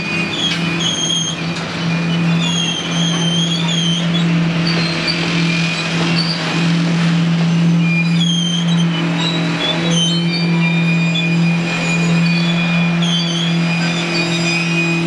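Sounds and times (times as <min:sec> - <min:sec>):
train wheels rumbling on rail: 0:00.0 - 0:15.0
wheel squeal: 0:00.0 - 0:15.0.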